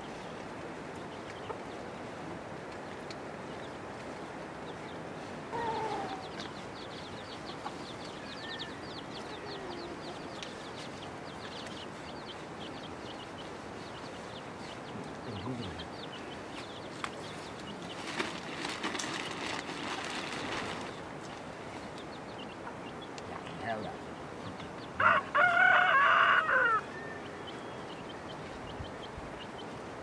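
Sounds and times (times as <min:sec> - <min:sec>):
hen clucking: 0:05.5 - 0:10.6.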